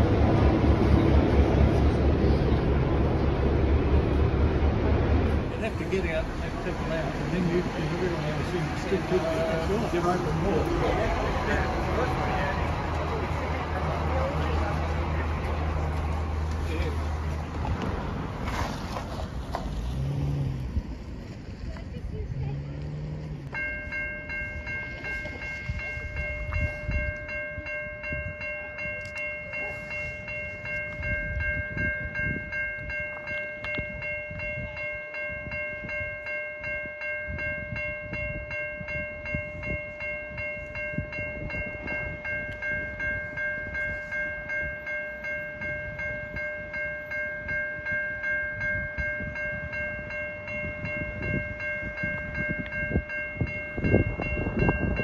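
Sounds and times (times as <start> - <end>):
low rumble: 0.0 - 9.7
crossing warning bell ringing: 0.0 - 17.8, 21.4 - 55.0.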